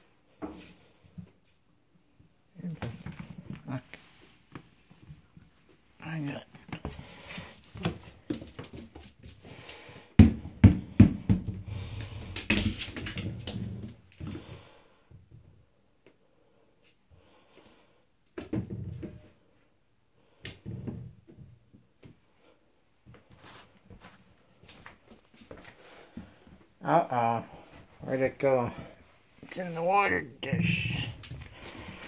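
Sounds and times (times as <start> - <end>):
rubber ball knocking and bouncing: 10.2 - 14.0.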